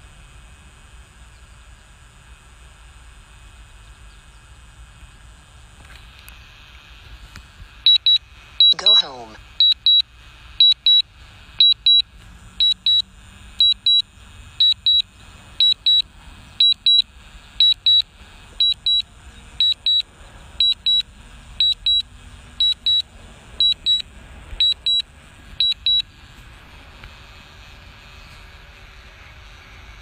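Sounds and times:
high double beeps: 0:07.9 - 0:10.0, 0:11.6 - 0:12.0, 0:16.6 - 0:17.0, 0:17.6 - 0:18.0, 0:21.6 - 0:22.0, 0:22.6 - 0:23.0.

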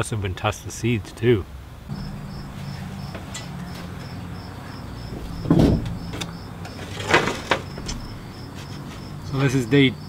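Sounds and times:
low mechanical hum: 0:01.8 - 0:09.7
insect chirping: 0:01.9 - 0:10.0
chair thump and scrape: 0:05.0 - 0:09.1.

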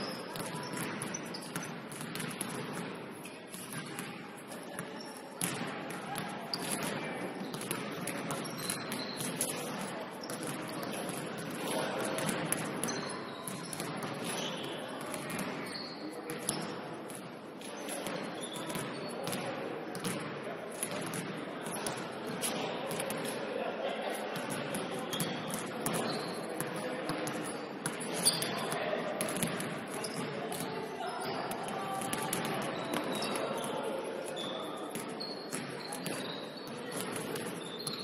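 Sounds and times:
sneaker squeaks: 0:00.0 - 0:20.2, 0:24.5 - 0:38.0
basketball bouncing on court: 0:00.4 - 0:04.2, 0:05.4 - 0:11.5, 0:12.1 - 0:17.2, 0:18.0 - 0:23.3, 0:24.4 - 0:30.6, 0:32.0 - 0:33.7, 0:34.3 - 0:38.0
players' voices: 0:21.6 - 0:36.4.

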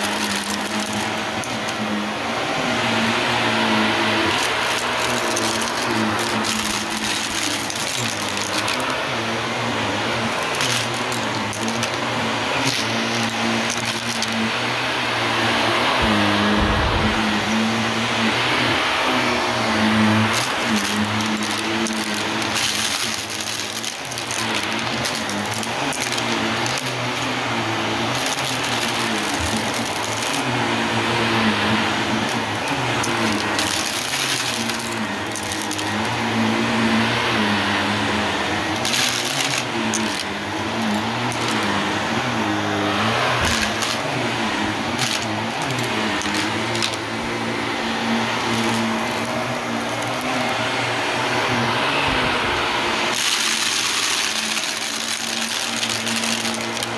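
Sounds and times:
sharp clicks and rattles: 0:00.0 - 0:01.9, 0:04.2 - 0:09.1, 0:10.3 - 0:14.5, 0:15.9 - 0:17.6, 0:20.1 - 0:30.5, 0:31.9 - 0:36.2, 0:38.7 - 0:42.0, 0:43.1 - 0:44.2, 0:44.8 - 0:47.1, 0:48.3 - 0:50.7, 0:53.1 - 0:56.9
vacuum cleaner motor hum: 0:00.0 - 0:56.9
rush of air: 0:15.4 - 0:19.5.

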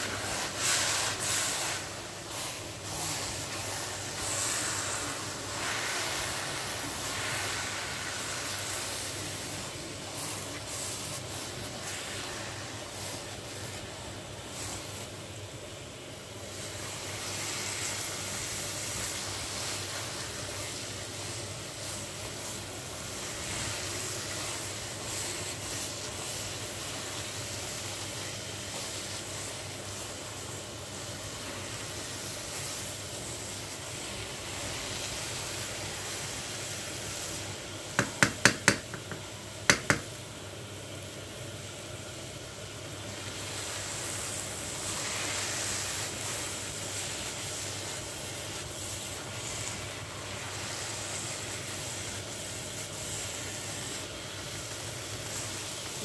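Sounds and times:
carrots sizzling in a pan: 0:00.0 - 0:56.0
spatula tapping a pan: 0:37.9 - 0:40.2.

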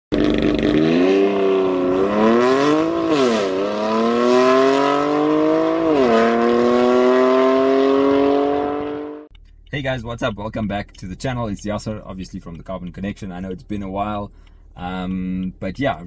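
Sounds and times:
car engine accelerating: 0:00.1 - 0:09.6.

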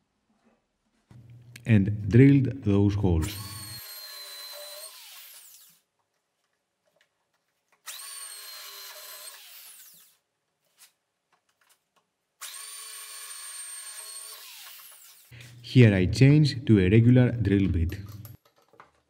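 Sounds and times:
drill boring into wood: 0:03.2 - 0:05.8, 0:07.8 - 0:10.2, 0:12.4 - 0:15.3
electric drill whining: 0:03.2 - 0:05.8, 0:07.8 - 0:10.2, 0:12.4 - 0:15.6.

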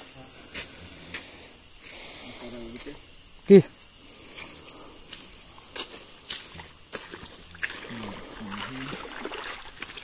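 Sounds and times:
crickets chirping: 0:00.0 - 0:10.0
footsteps on muddy path: 0:04.3 - 0:10.0.

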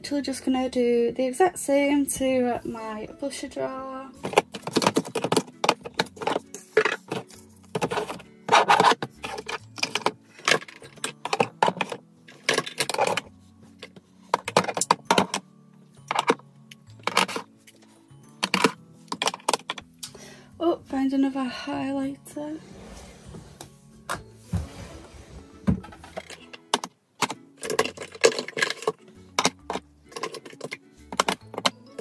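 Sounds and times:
plastic compacts clicking: 0:04.2 - 0:15.4, 0:16.0 - 0:17.5, 0:18.4 - 0:19.9, 0:25.9 - 0:32.0.

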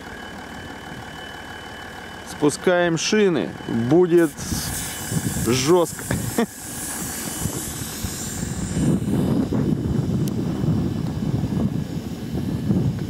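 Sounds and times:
air hissing out of tyre: 0:04.1 - 0:12.7
wind rumble on microphone: 0:04.3 - 0:13.0.

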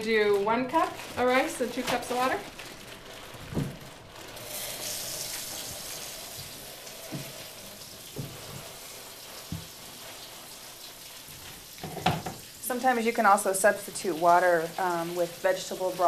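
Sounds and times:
tap running into sink: 0:05.2 - 0:08.8, 0:09.4 - 0:09.8, 0:11.3 - 0:12.5
cookware knocking on counter: 0:11.8 - 0:12.4.

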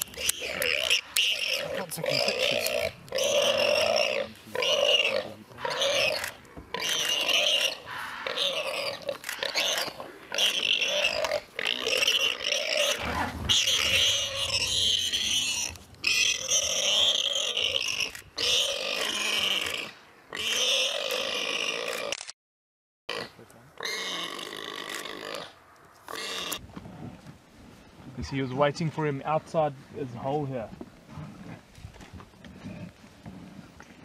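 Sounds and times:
warthog squealing: 0:00.0 - 0:22.1, 0:23.2 - 0:26.6.

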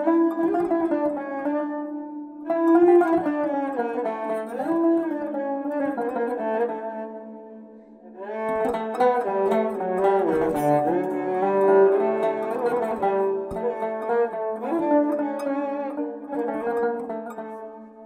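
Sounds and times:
plucked long-necked lute: 0:00.0 - 0:18.0
bowed spike fiddle: 0:08.2 - 0:18.0.

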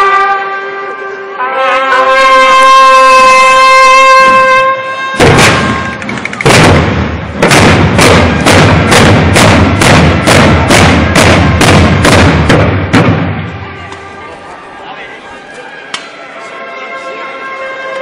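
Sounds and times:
bugle long note: 0:00.0 - 0:06.0, 0:16.2 - 0:18.0
procession drum beating: 0:05.2 - 0:13.4.

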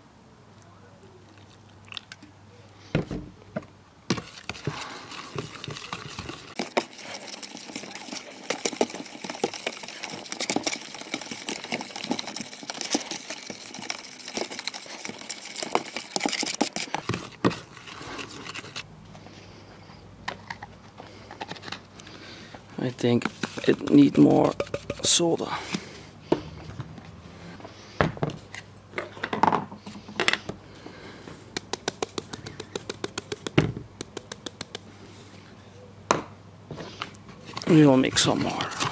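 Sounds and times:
spoon scraping plastic tub: 0:04.1 - 0:18.8, 0:22.8 - 0:26.0, 0:37.6 - 0:38.9.

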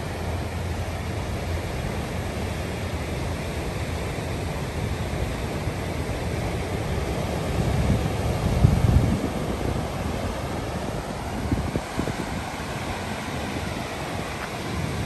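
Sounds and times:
waves breaking on rocky shore: 0:00.0 - 0:15.0.

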